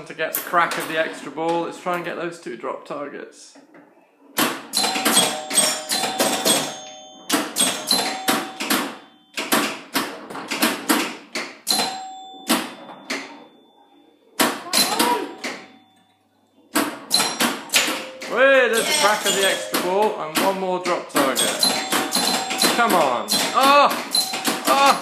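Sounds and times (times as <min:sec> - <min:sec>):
pinball machine clacking: 0:00.3 - 0:01.1, 0:04.4 - 0:13.8, 0:14.4 - 0:16.0, 0:16.6 - 0:25.0
pinball bell tones: 0:04.7 - 0:10.3, 0:11.6 - 0:25.0.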